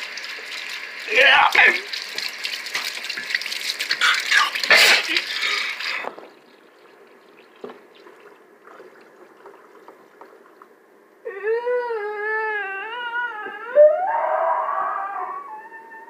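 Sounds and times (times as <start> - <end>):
faint water trickle: 0.0 - 11.2.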